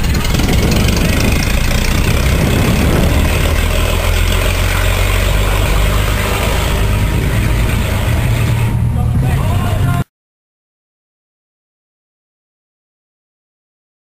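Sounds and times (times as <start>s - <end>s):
heavy vehicle engine rumbling: 0.0s - 10.1s.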